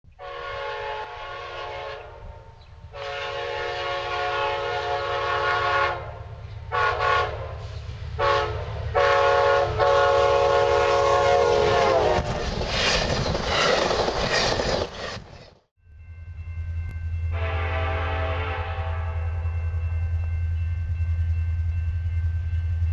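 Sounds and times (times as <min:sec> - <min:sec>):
locomotive air horn blasts: 0:00.2 - 0:12.5, 0:17.3 - 0:19.8
passing train clatter: 0:00.2 - 0:22.9
train rumbling: 0:00.2 - 0:22.9.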